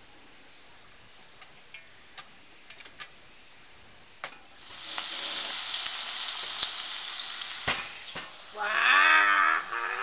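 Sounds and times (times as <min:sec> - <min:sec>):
meat sizzling in a pot: 0:04.5 - 0:10.0.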